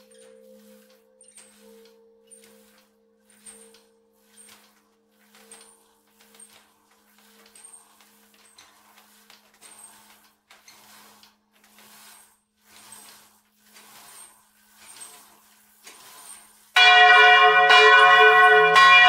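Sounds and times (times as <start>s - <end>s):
bell hum low steady tone: 0.0s - 6.6s, 16.8s - 19.0s.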